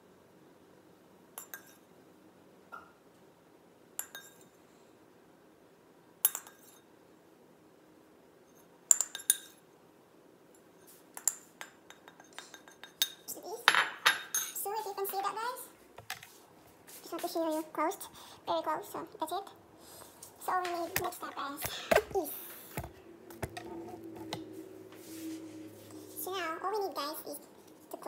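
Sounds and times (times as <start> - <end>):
metal spoon clinking on bowl: 1.4 - 1.8, 4.0 - 4.5, 6.2 - 6.8, 8.9 - 9.6, 11.2 - 14.6
spoon scraping bowl: 20.8 - 26.2.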